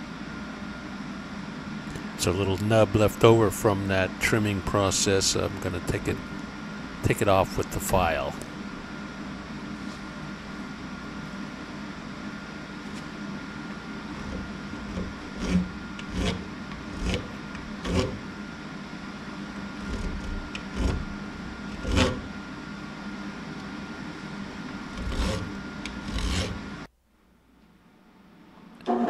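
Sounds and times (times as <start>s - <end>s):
steady hum: 0.0s - 29.0s
file scraping metal: 14.1s - 18.3s, 19.7s - 22.4s, 24.9s - 26.8s.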